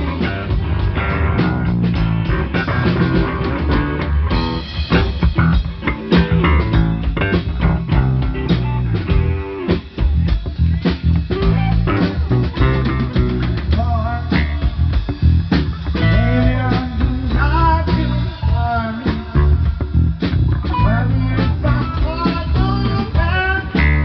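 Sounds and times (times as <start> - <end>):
bass guitar: 0.0 - 24.0
drum kit: 0.0 - 24.0
electric guitar: 0.0 - 24.0.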